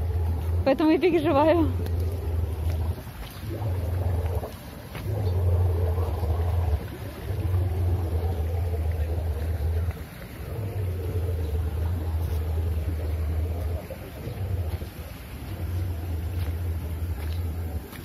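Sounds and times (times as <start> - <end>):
wind buffeting microphone: 0.0 - 18.0.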